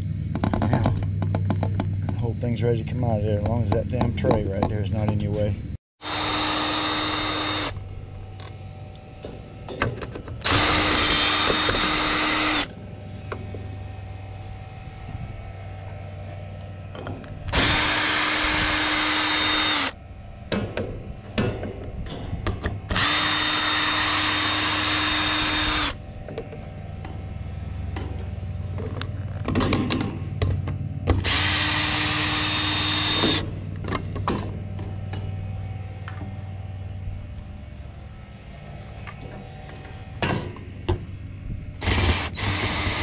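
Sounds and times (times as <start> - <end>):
cordless drill running: 6.0 - 7.9, 10.4 - 12.7, 17.5 - 20.0, 22.9 - 26.0, 31.2 - 33.5, 41.8 - 43.0.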